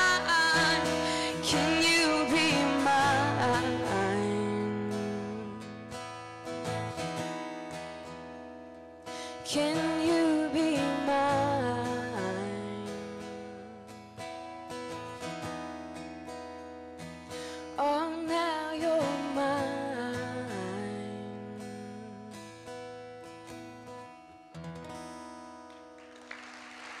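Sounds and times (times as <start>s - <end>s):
person singing wordlessly: 0.0s - 5.6s, 9.5s - 13.3s, 17.8s - 22.3s
acoustic guitar picking and strumming: 0.0s - 26.7s
applause: 25.6s - 27.0s.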